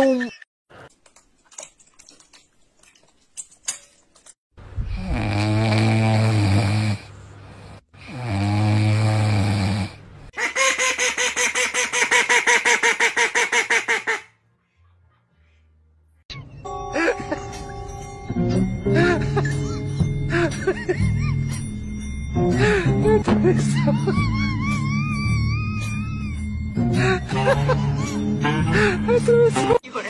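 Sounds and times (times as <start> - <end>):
puppy snoring: 4.9 - 10.0
duck quacking: 10.4 - 15.1.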